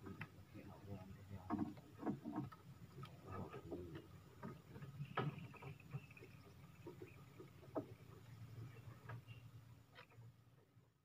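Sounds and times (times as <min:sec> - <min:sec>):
knocks and taps in wooden boat: 0:01.3 - 0:09.4.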